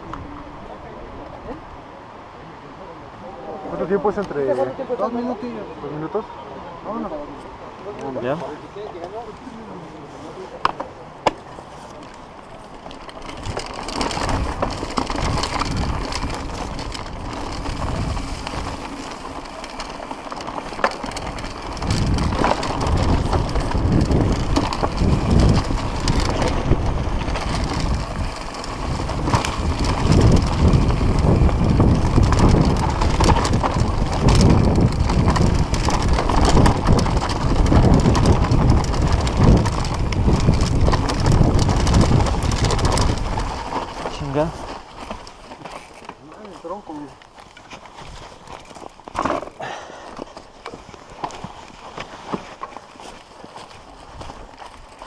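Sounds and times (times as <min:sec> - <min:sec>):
bike tyres rolling over dirt: 0:07.8 - 0:55.0
bike chain and frame rattling: 0:12.0 - 0:55.0.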